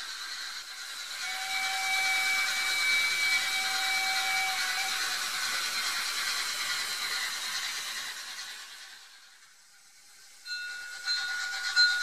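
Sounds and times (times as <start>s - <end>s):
model train whirring on track: 0.0s - 12.0s
held high tone: 10.5s - 12.0s.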